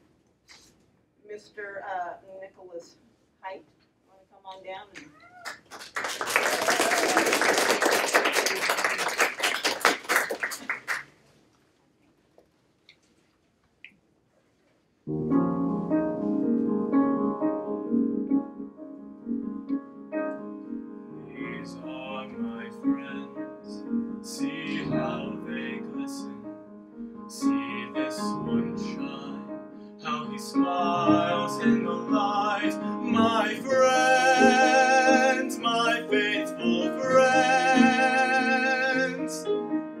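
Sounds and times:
audience applause: 0:05.4 - 0:11.1
slow piano accompaniment: 0:15.0 - 0:40.0
baritone voice singing: 0:21.2 - 0:26.5, 0:27.3 - 0:39.6.

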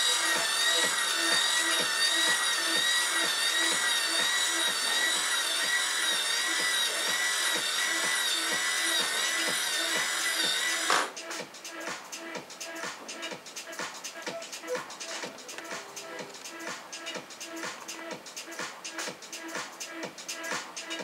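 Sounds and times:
motor and gear whine: 0:00.0 - 0:11.1.

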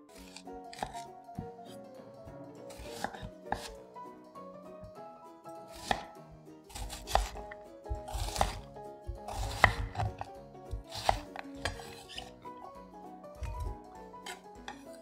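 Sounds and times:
background music: 0:00.0 - 0:15.0
knife chopping onion on board: 0:00.2 - 0:01.8, 0:02.7 - 0:03.8, 0:05.7 - 0:12.3, 0:13.4 - 0:15.0.

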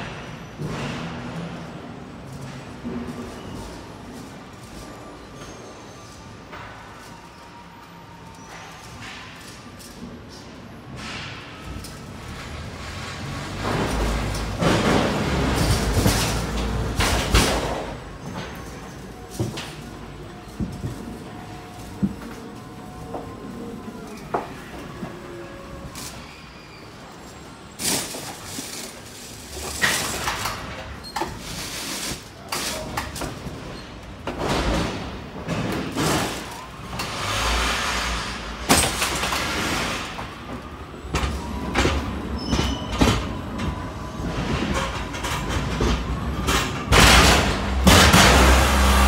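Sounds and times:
truck engine and road drone: 0:44.2 - 0:49.0.

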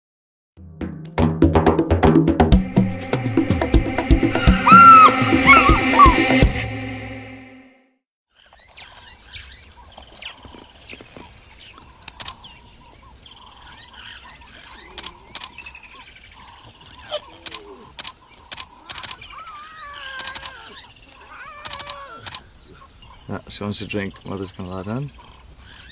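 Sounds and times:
intro music: 0:00.6 - 0:07.9
bird calls: 0:04.3 - 0:06.4, 0:08.3 - 0:25.9
insect drone: 0:08.3 - 0:25.9
sharp clicks: 0:12.0 - 0:12.4, 0:14.9 - 0:15.6, 0:17.4 - 0:19.3, 0:20.2 - 0:20.6.

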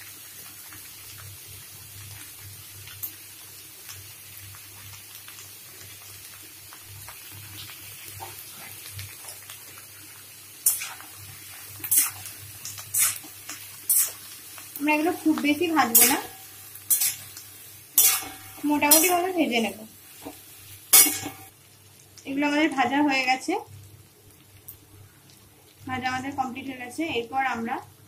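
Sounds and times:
vegetables sizzling in oil: 0:00.0 - 0:28.0
spatula scraping metal pan: 0:15.8 - 0:17.3, 0:18.0 - 0:19.3.

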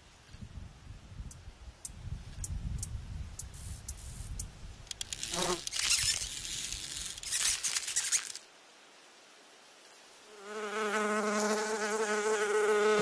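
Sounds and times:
low wind rumble: 0:00.0 - 0:05.0
dry rustling crackling hiss: 0:00.0 - 0:10.6
buzzing chirp: 0:05.0 - 0:08.4.

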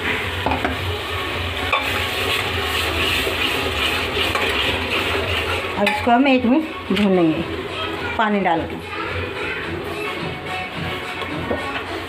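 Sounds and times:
tomato puree sizzling in oil: 0:00.0 - 0:12.0
steel ladle stirring: 0:01.6 - 0:07.6.

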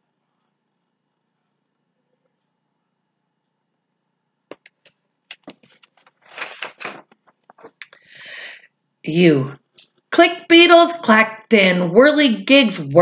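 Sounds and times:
book pages turning: 0:04.5 - 0:07.8.

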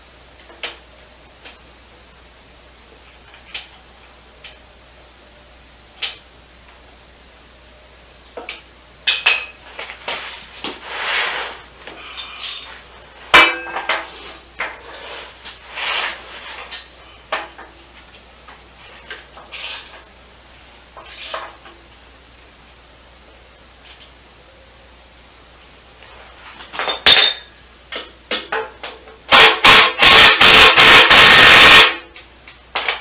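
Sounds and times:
ringing metal clank: 0:13.4 - 0:14.1.

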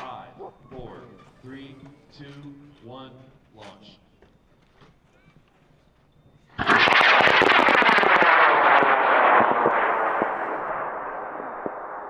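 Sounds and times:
rocket motor roaring and crackling: 0:06.6 - 0:12.0.

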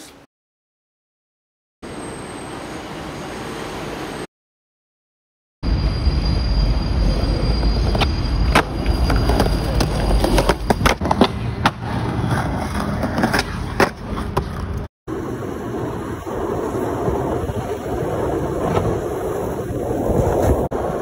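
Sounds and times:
skateboard wheels rolling on concrete: 0:06.6 - 0:21.0.

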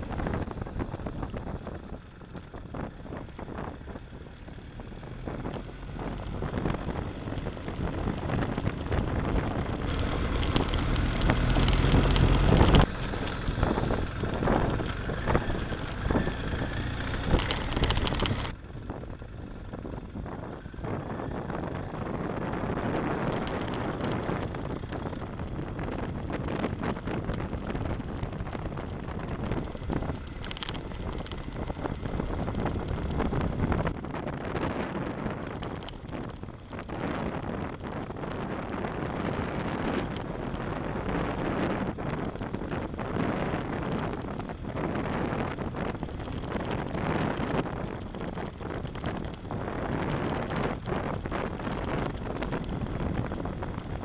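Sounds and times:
motorcycle engine rumble: 0:00.0 - 0:54.0
wind buffeting microphone: 0:00.0 - 0:54.0
tyres on loose gravel: 0:06.3 - 0:18.6, 0:20.9 - 0:54.0.

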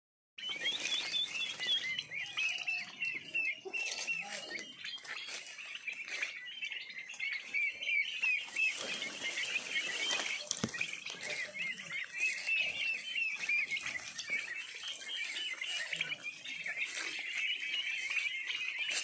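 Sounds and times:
turkey poults peeping: 0:00.4 - 0:19.0.

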